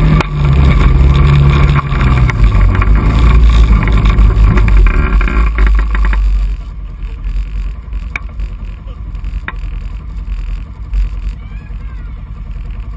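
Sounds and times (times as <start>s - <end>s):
quad bike engine idling: 0.0s - 12.9s
sharp clicks: 1.8s - 6.6s.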